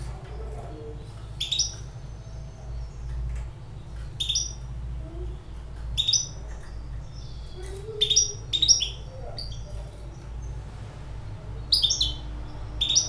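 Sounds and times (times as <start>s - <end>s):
finch chirping: 0.4s - 4.7s, 5.9s - 10.6s, 11.6s - 13.0s.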